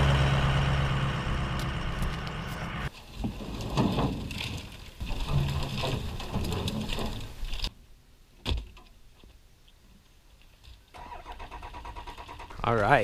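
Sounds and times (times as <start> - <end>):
branches rustling and scraping: 1.5 - 7.8.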